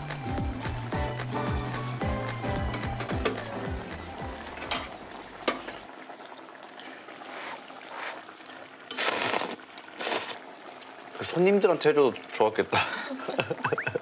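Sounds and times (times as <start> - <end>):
background music: 0.0 - 5.4
person slurping noodles: 8.9 - 10.4.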